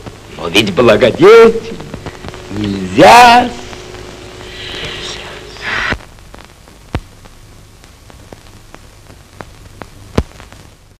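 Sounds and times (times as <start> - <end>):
film soundtrack hiss: 0.0 - 11.0
clicks and pops: 5.9 - 10.7.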